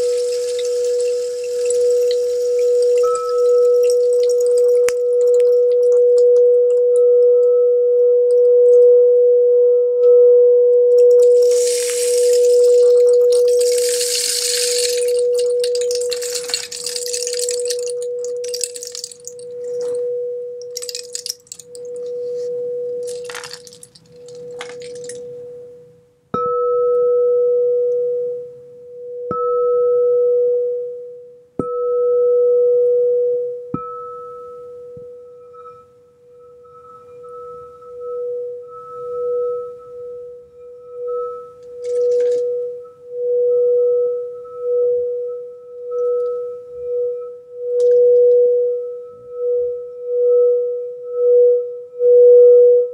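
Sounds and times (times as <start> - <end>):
rain stick trickling: 0.0 - 5.6, 11.2 - 20.0, 20.6 - 22.1, 23.0 - 25.2
singing bowl tone: 0.0 - 23.6, 24.5 - 52.9.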